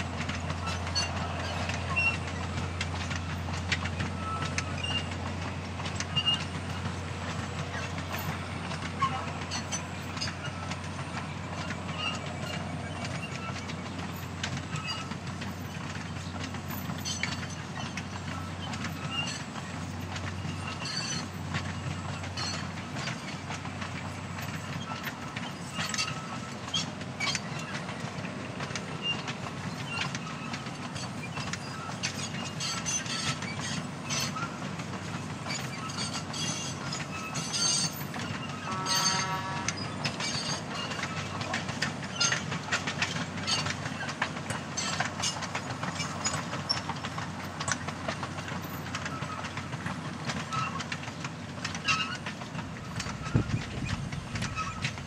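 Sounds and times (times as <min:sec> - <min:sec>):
train cars rumbling past: 0:00.0 - 0:55.0
wheels clicking and clanking: 0:00.0 - 0:55.0
short squeal: 0:00.6 - 0:02.3, 0:04.2 - 0:05.1, 0:14.8 - 0:15.8, 0:35.5 - 0:41.3.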